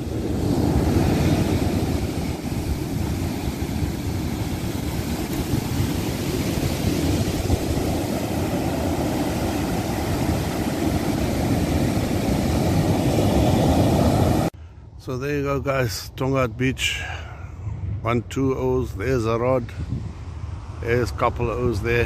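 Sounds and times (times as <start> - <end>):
surf breaking on a beach: 0.0 - 14.5
wind rumbling on microphone: 0.0 - 15.0, 16.2 - 22.0.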